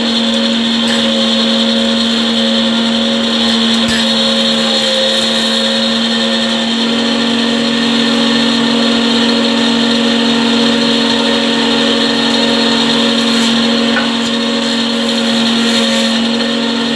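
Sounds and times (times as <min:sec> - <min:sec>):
woodworking machinery running: 0:00.0 - 0:16.9.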